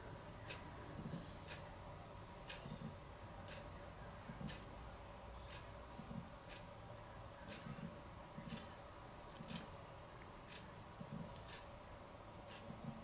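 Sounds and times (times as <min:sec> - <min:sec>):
low steady hum: 0:00.0 - 0:13.0
clock ticking: 0:00.4 - 0:00.7, 0:01.5 - 0:01.7, 0:02.4 - 0:04.7, 0:05.4 - 0:05.8, 0:06.5 - 0:06.7, 0:07.5 - 0:09.7, 0:10.3 - 0:11.7, 0:12.5 - 0:13.0.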